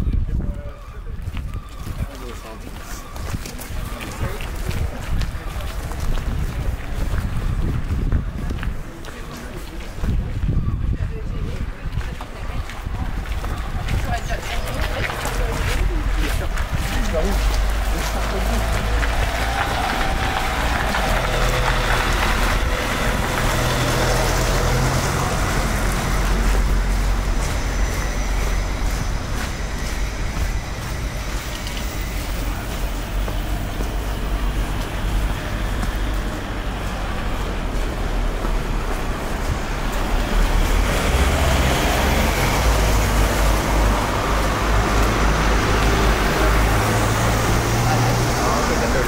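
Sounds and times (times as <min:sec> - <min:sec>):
low engine rumble: 0:00.0 - 0:49.0
road noise: 0:00.0 - 0:49.0
vehicle passing close: 0:13.6 - 0:49.0.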